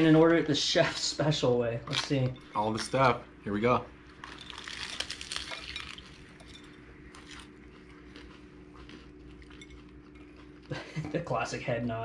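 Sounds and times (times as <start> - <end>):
faint chewing crunches: 4.0 - 10.9
crunching crispy taco: 4.1 - 10.8.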